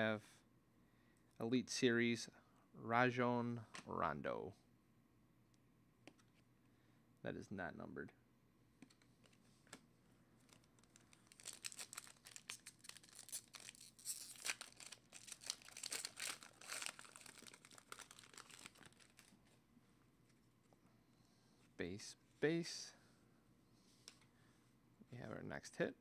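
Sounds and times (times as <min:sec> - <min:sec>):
foil wrapper crinkling and tearing: 0:10.4 - 0:19.4.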